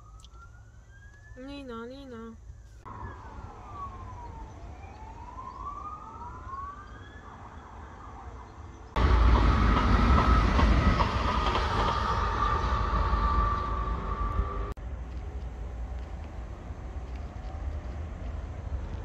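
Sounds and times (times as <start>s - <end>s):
emergency vehicle siren wailing: 0.0s - 14.8s
heavy vehicle rumble: 8.5s - 19.0s.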